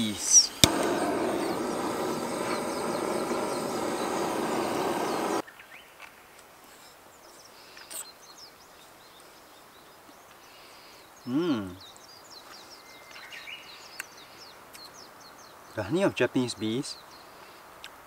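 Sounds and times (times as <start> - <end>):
birds chirping: 0.0 - 5.5
butane torch hissing: 0.3 - 5.4.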